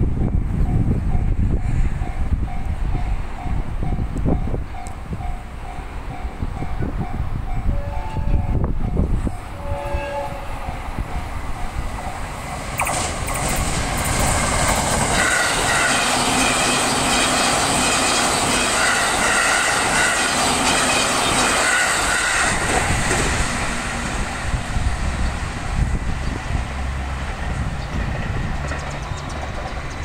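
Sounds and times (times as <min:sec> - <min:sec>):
train rushing past: 0:00.0 - 0:30.0
crossing warning bells: 0:00.1 - 0:30.0
train horn: 0:07.5 - 0:08.7, 0:09.4 - 0:10.8, 0:15.2 - 0:16.2.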